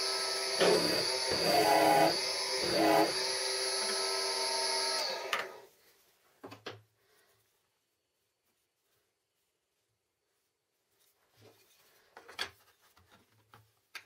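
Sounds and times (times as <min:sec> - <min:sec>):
drill bit cutting wood: 0:00.0 - 0:05.4
drill press motor running: 0:00.0 - 0:05.6.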